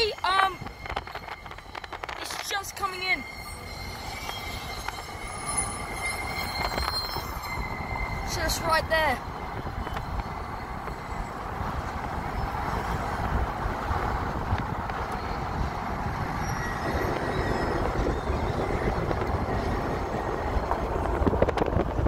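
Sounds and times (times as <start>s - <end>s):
tyres rumbling on road: 0.0s - 22.0s
wind through open car window: 6.6s - 22.0s.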